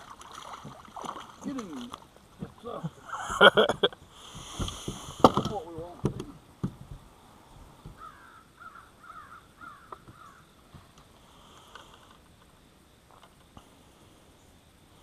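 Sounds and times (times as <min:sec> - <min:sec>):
faint crow cawing: 0:07.9 - 0:10.5.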